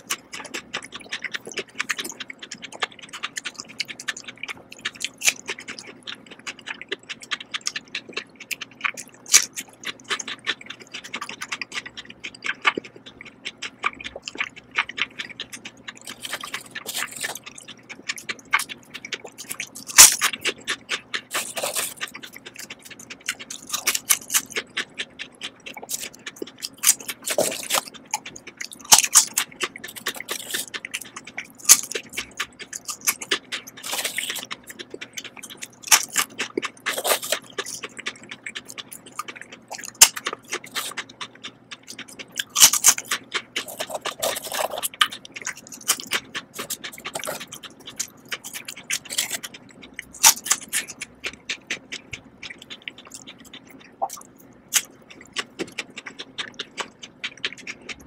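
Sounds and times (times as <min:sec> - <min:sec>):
potato chips crunching: 0:00.0 - 0:58.0.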